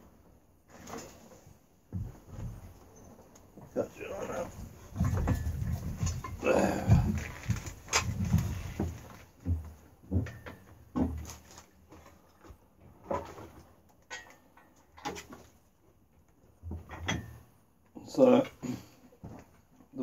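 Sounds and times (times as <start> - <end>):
metal knocks and clunks: 4.2 - 11.4, 16.6 - 17.5.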